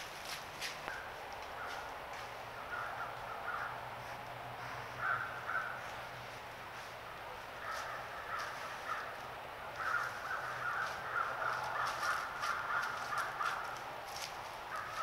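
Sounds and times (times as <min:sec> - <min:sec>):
footsteps crackling dry leaves: 0:00.0 - 0:02.8, 0:05.8 - 0:15.0
distant animal calling: 0:00.9 - 0:06.2, 0:07.3 - 0:15.0.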